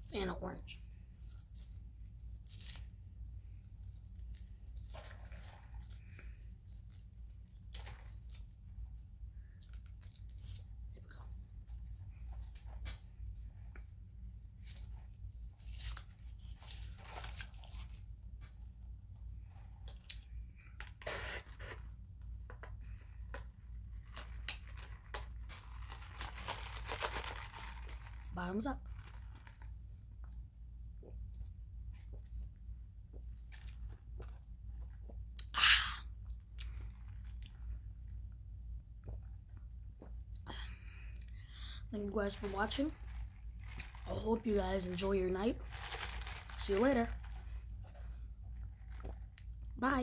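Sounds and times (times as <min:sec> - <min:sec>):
low steady hum: 0:00.0 - 0:50.0
paper rustling and tearing: 0:15.5 - 0:18.0, 0:24.2 - 0:29.7, 0:42.2 - 0:48.0
paper crackle: 0:24.0 - 0:30.0, 0:42.2 - 0:48.2.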